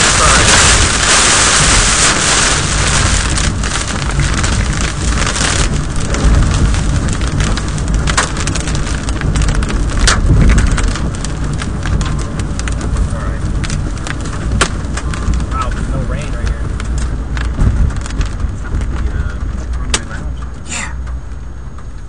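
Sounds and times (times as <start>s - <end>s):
hail and rain on car roof: 0.0s - 22.0s
low rumble: 0.0s - 22.0s.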